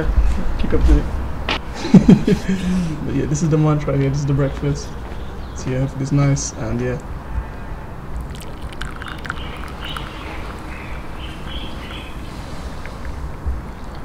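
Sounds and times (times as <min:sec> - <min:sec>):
tea pouring into cup: 0:08.2 - 0:14.0.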